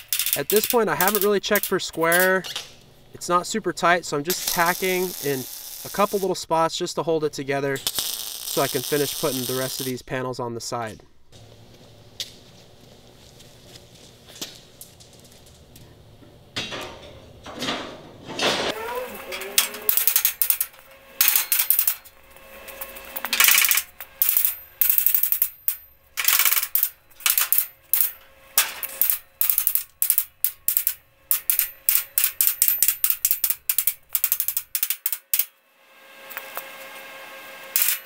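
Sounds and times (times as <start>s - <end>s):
crackling arc welding bursts: 0.0s - 6.6s, 7.3s - 10.2s, 18.7s - 38.0s.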